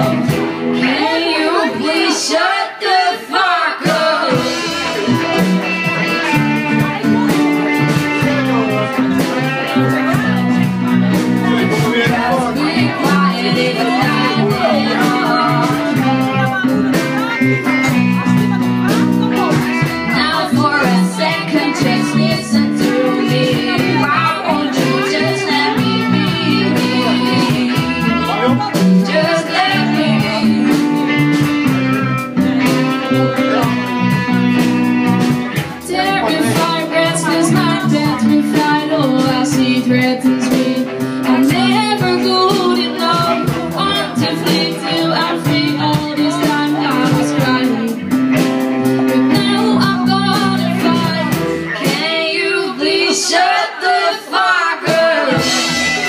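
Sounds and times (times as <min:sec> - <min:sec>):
steady drum beat: 0:00.0 - 0:02.4, 0:03.7 - 0:52.7, 0:54.8 - 0:56.0
woman singing: 0:00.0 - 0:04.9, 0:11.4 - 0:31.5, 0:35.8 - 0:48.0, 0:49.1 - 0:56.0
electric guitars: 0:00.0 - 0:53.0, 0:54.9 - 0:56.0
bass guitar: 0:00.0 - 0:53.2, 0:54.8 - 0:56.0.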